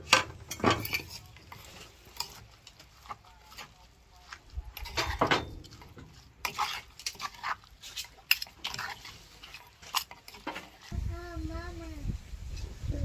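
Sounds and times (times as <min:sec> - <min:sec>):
metal spoon scraping a mortar: 0:00.0 - 0:03.9, 0:04.7 - 0:10.9.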